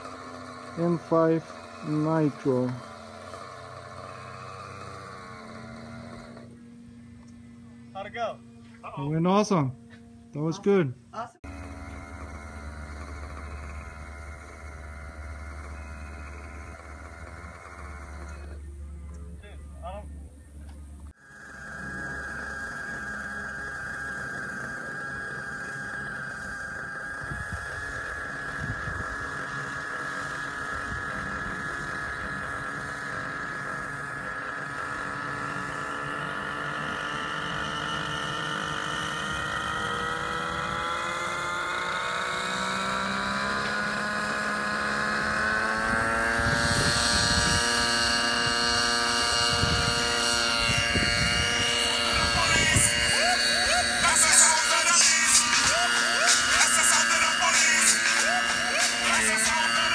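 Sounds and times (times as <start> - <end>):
model helicopter engine and rotor: 0.0 - 59.9
rushing wind noise: 49.4 - 53.1.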